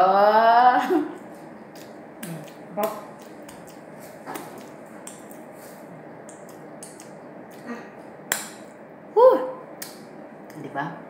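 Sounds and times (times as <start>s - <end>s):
soft eating and table clicks: 1.2s - 5.5s, 6.2s - 7.7s.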